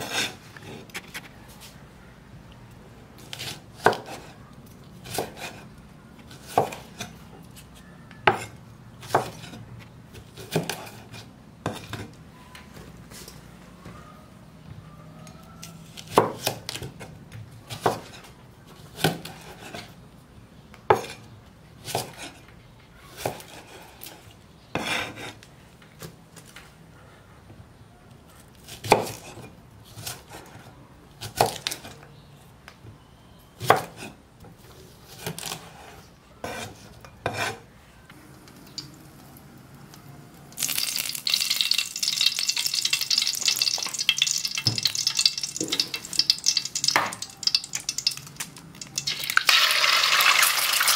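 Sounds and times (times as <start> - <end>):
hot oil sizzling in a pan: 40.6 - 50.9.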